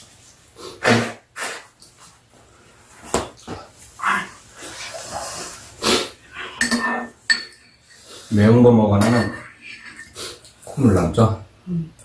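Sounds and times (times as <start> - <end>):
people blowing noses: 0.6 - 1.8, 4.6 - 6.5.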